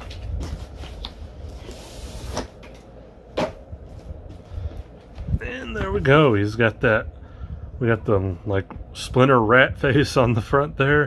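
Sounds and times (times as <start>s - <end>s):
cardboard sliding scrape: 0.5s - 2.6s.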